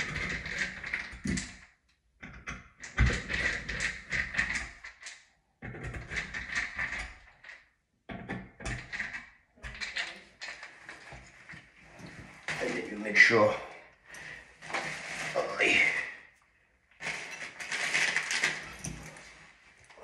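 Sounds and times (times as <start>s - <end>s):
metal and plastic parts scraping: 14.1s - 15.7s, 17.0s - 20.0s.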